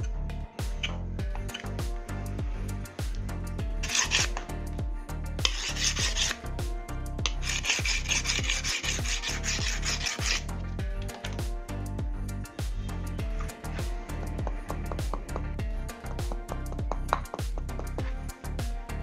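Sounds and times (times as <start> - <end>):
background music with steady beat: 0.0 - 19.0
knife blade scraping: 0.8 - 1.8, 3.8 - 4.5, 5.4 - 6.5, 7.3 - 11.4.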